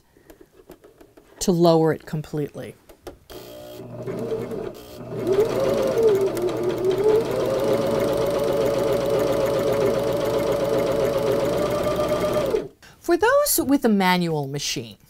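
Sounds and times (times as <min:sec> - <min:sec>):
sewing machine stitching: 0:03.5 - 0:12.7.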